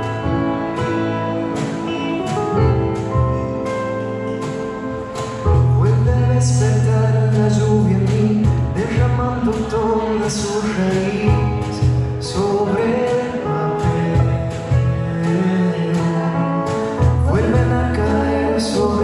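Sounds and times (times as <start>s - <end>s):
drums: 0.0s - 19.0s
electric guitar: 0.0s - 19.0s
keyboard: 0.0s - 19.0s
person singing: 5.2s - 19.0s.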